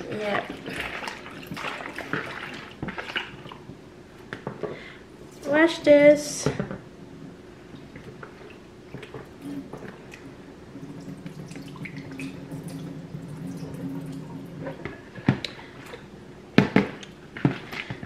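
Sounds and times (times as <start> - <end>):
water splashes and drips: 0.2 - 3.6, 10.8 - 15.0.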